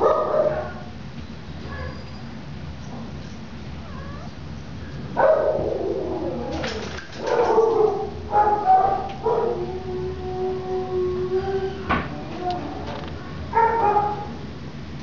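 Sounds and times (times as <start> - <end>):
dogs whining yowls: 3.8 - 4.4.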